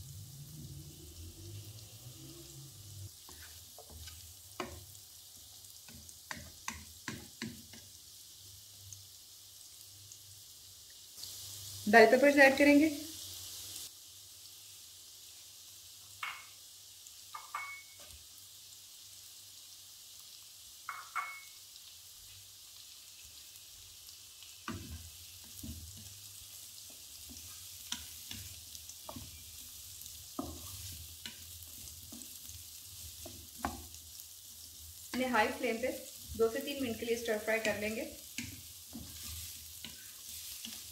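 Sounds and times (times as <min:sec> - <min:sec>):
vegetables sizzling in oil: 0:00.0 - 0:40.9
wooden spatula tapping pan: 0:03.3 - 0:04.9, 0:05.9 - 0:07.9, 0:16.2 - 0:16.5, 0:30.4 - 0:32.4, 0:33.2 - 0:33.9.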